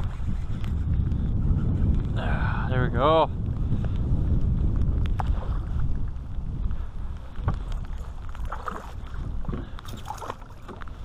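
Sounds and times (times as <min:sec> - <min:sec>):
wind buffeting microphone: 0:00.0 - 0:11.0
water slapping against boat: 0:07.4 - 0:11.0.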